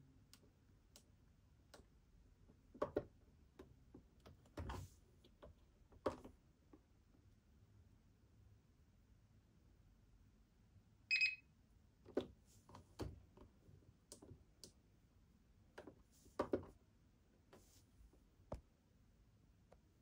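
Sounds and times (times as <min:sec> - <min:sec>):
short electronic beep: 0:11.1 - 0:11.4.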